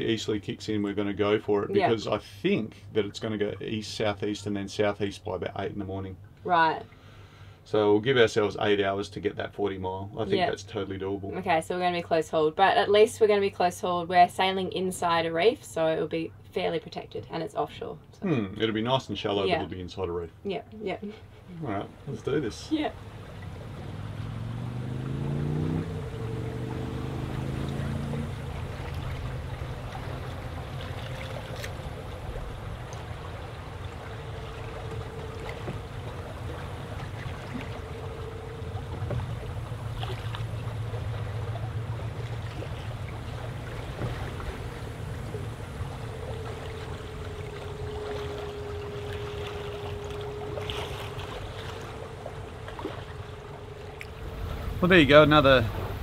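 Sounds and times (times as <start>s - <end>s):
water rushing along hull: 0.0s - 56.0s
wind: 0.0s - 56.0s
low hum: 20.6s - 56.0s.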